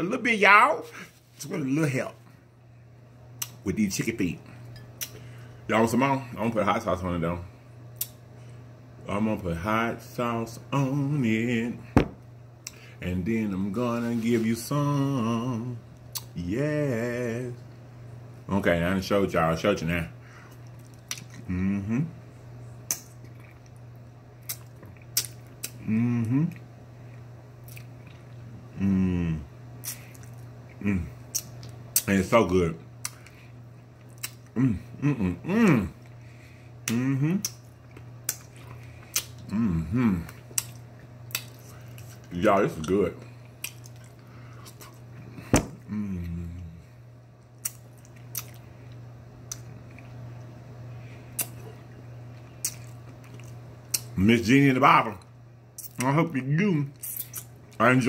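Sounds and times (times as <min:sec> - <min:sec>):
low electrical hum: 0:00.0 - 0:58.0
person humming: 0:21.4 - 0:22.2, 0:25.8 - 0:26.6, 0:28.7 - 0:29.5, 0:30.8 - 0:31.1, 0:34.6 - 0:36.0, 0:36.8 - 0:37.5, 0:39.5 - 0:40.4, 0:45.8 - 0:46.8
person making vocal sounds: 0:21.4 - 0:22.2, 0:25.7 - 0:26.6, 0:28.7 - 0:29.5, 0:30.8 - 0:31.2, 0:34.5 - 0:36.0, 0:36.8 - 0:37.6, 0:39.4 - 0:40.4, 0:45.6 - 0:46.8.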